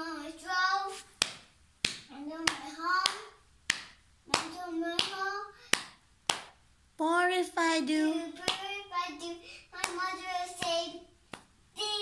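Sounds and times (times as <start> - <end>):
child singing: 0.0 - 1.1, 2.1 - 3.4, 4.3 - 5.6, 7.0 - 12.0
hand claps: 1.1 - 6.6, 8.4 - 8.8, 9.8 - 11.6.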